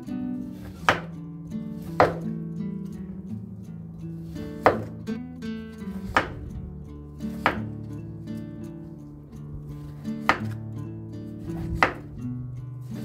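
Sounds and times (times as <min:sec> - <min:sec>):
knife slicing on wooden board: 0:00.6 - 0:01.1, 0:01.8 - 0:02.2, 0:04.2 - 0:05.0, 0:06.0 - 0:06.4, 0:07.3 - 0:07.7, 0:09.9 - 0:10.6, 0:11.5 - 0:12.1.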